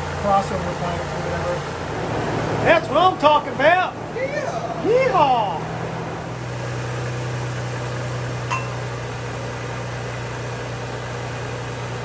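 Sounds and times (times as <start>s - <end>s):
car engine running: 0.0s - 12.0s
short clink: 8.5s - 8.9s.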